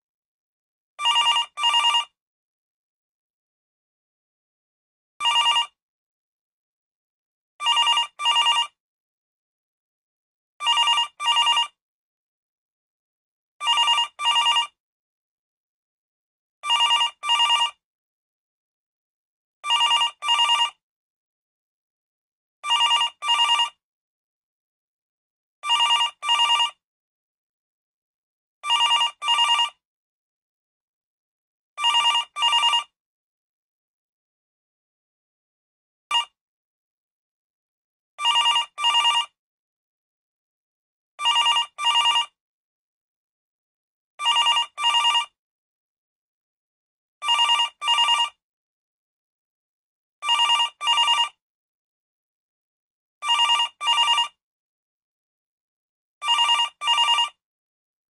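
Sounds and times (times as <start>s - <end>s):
telephone bell ringing: 1.0s - 2.2s, 5.2s - 5.8s, 7.6s - 8.8s, 10.6s - 11.8s, 13.6s - 14.8s, 16.6s - 17.8s, 19.6s - 20.8s, 22.6s - 23.8s, 25.6s - 26.8s, 28.6s - 29.8s, 31.8s - 33.0s, 36.1s - 36.4s, 38.2s - 39.4s, 41.2s - 42.4s, 44.2s - 45.4s, 47.2s - 48.4s, 50.2s - 51.4s, 53.2s - 54.4s, 56.2s - 57.4s.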